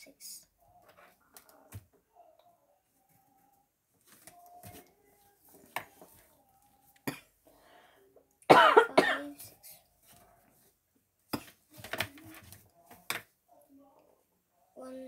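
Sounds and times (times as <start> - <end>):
person coughing: 8.5 - 9.4.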